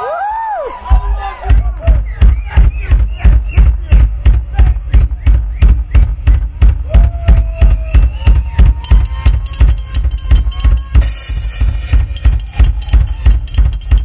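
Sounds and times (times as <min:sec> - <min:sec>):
bass drum pulses: 0:00.9 - 0:14.0
snare and tom hits: 0:01.5 - 0:14.0
cymbal crash: 0:11.0 - 0:13.3.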